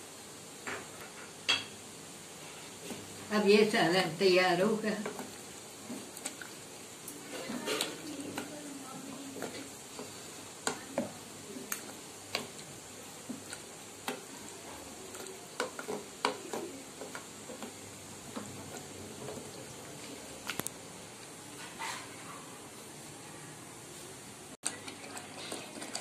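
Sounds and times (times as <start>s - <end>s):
curry sizzling: 0.0s - 26.0s
wooden spoon scraping metal pot: 13.3s - 20.3s.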